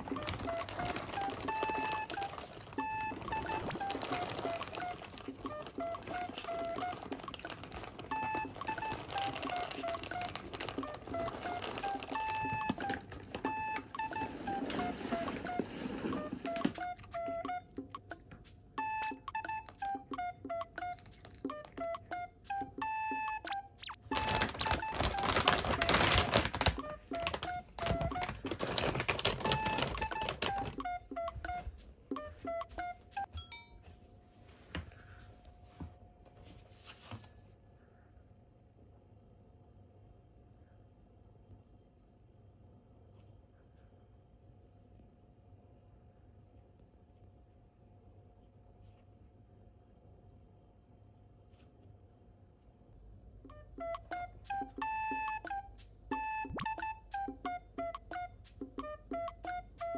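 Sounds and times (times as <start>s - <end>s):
plastic bag crinkling: 0.0s - 16.8s, 23.8s - 31.4s
electronic beeping melody: 0.0s - 33.4s, 53.5s - 59.9s.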